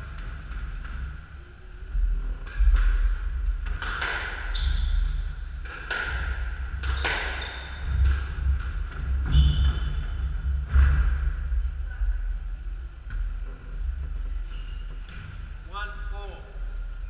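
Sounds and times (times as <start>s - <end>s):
shoes squeaking: 4.4s - 5.2s
squash ball cracking off rackets: 5.6s - 8.8s.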